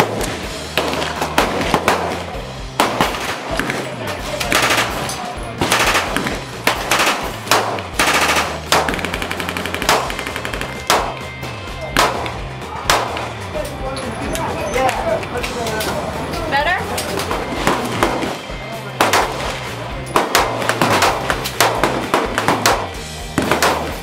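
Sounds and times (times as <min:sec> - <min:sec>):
single gunshots: 0:00.0 - 0:05.0, 0:05.6 - 0:09.2, 0:12.0 - 0:13.3, 0:19.0 - 0:19.6, 0:20.2 - 0:24.0
background music with bass line: 0:00.0 - 0:24.0
automatic gunfire bursts: 0:04.5 - 0:05.0, 0:05.6 - 0:11.1.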